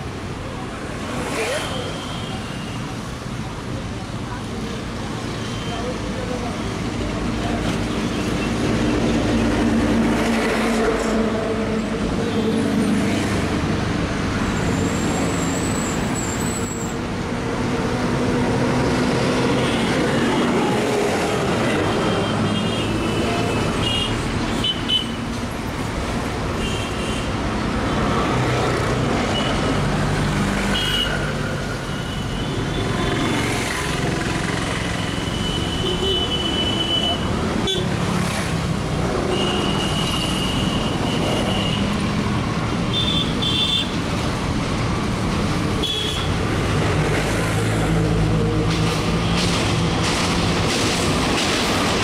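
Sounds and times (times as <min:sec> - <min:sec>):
traffic noise: 0:00.0 - 0:52.0
electric train rumbling on tracks: 0:04.8 - 0:24.6, 0:43.9 - 0:52.0.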